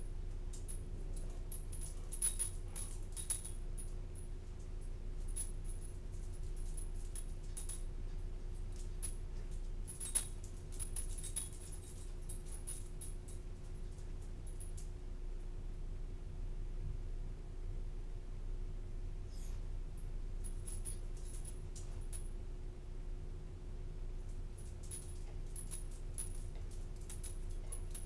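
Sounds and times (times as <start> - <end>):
steady electrical hum: 0.0 - 28.0
dog collar tags jingling: 0.5 - 4.3, 5.2 - 7.9, 8.6 - 14.9, 20.4 - 22.3, 24.5 - 28.0.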